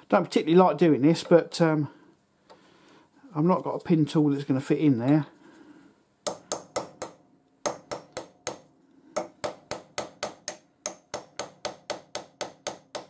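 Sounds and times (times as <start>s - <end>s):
hammer tapping steel pin: 6.2s - 13.0s.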